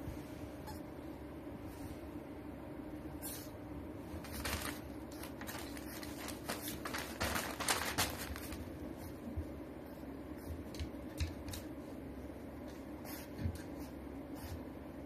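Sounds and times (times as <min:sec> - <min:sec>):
steady low hum: 0:00.0 - 0:15.0
puppy paws scratching carpet: 0:03.2 - 0:14.8
newspaper rustling: 0:04.2 - 0:08.9.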